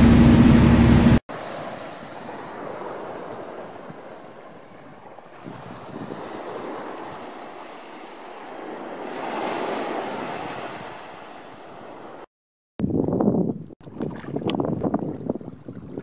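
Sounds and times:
small waves breaking on beach: 1.3 - 12.3.

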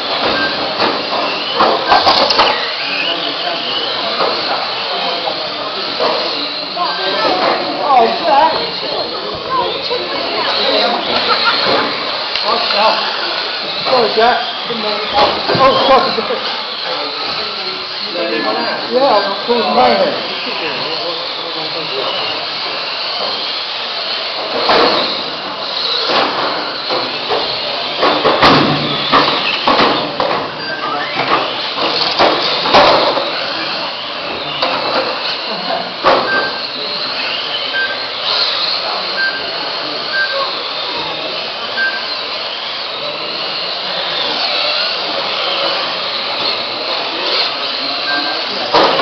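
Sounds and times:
small electric motors whining: 0.0 - 49.0
toy cars knocking into barriers: 0.1 - 2.8, 24.3 - 30.5, 31.1 - 33.4, 34.6 - 35.4, 36.0 - 36.6, 48.7 - 49.0
short timing beeps: 36.2 - 36.7, 41.8 - 42.1.

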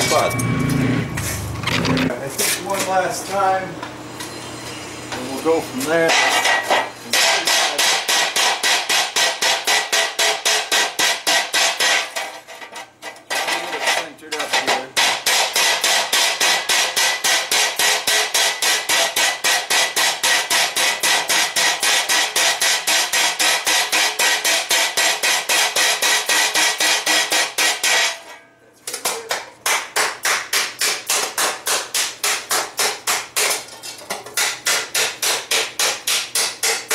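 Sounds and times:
mallet striking metal ringing: 0.0 - 0.8.

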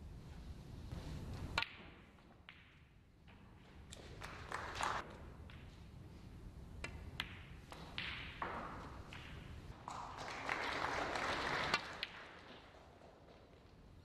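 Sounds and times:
snooker balls knocking together: 6.8 - 10.2.

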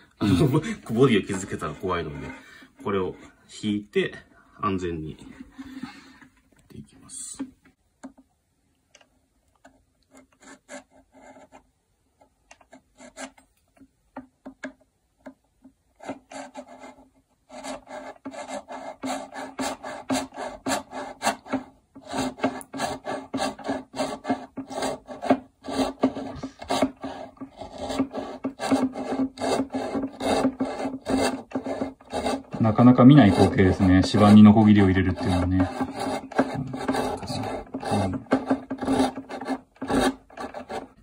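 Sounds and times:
hand saw cutting wood: 0.3 - 3.2, 16.0 - 41.0.

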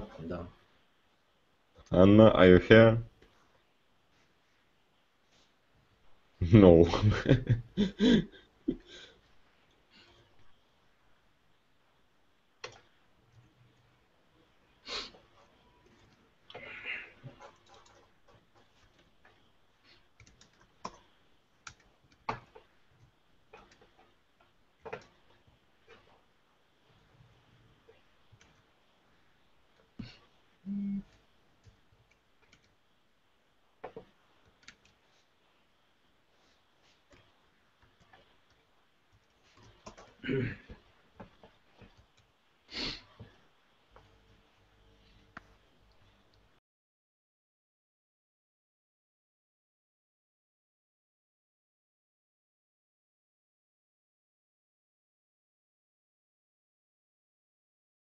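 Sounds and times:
computer keyboard typing: 20.2 - 22.6, 32.1 - 32.8, 33.8 - 35.0, 39.1 - 40.1.

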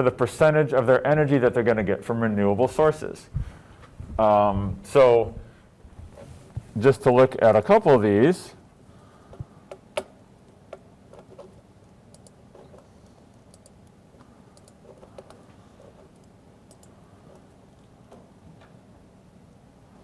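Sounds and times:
computer mouse clicks: 9.7 - 15.4, 16.0 - 17.9
computer keyboard clicks: 12.1 - 12.4, 13.5 - 13.9, 14.6 - 15.4, 16.1 - 17.4.

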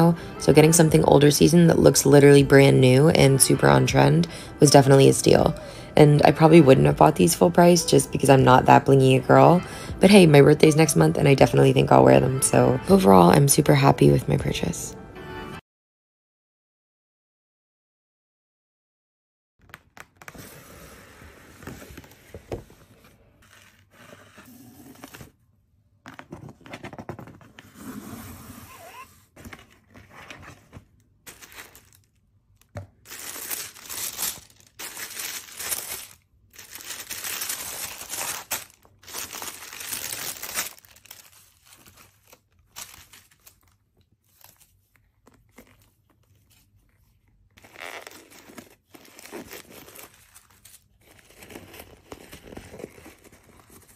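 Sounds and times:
paper crinkling and tearing: 28.7 - 32.2, 33.0 - 53.9.

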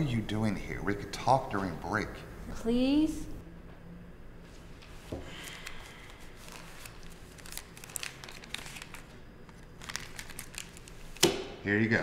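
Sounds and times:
paper banknotes rustling: 5.4 - 11.2.

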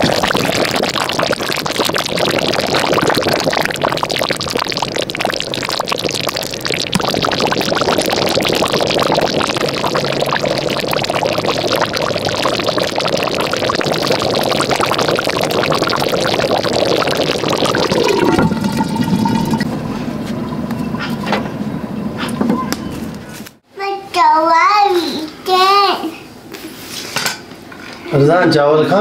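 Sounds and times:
stew bubbling in a pot: 0.0 - 19.8.

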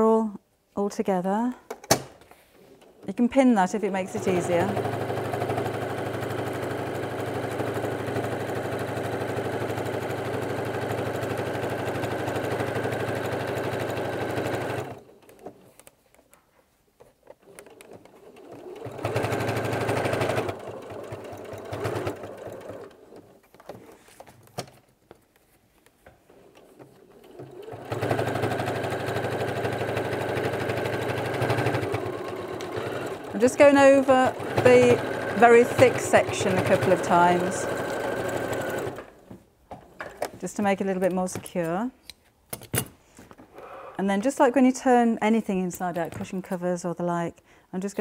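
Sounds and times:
electric sewing machine stitching: 4.0 - 15.1, 17.4 - 23.4, 26.4 - 39.2.

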